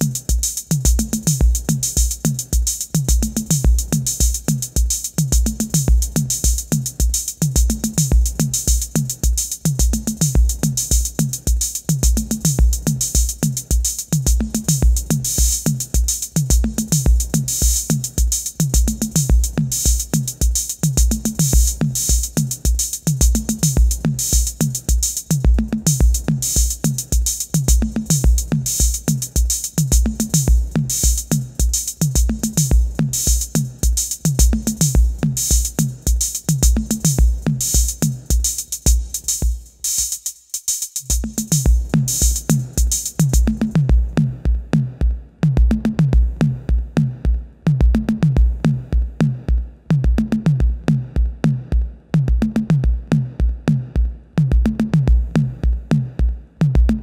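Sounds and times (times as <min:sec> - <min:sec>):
drum machine bass drum: 0:00.0 - 0:57.0
drum machine hi-hat ticks: 0:00.0 - 0:57.0.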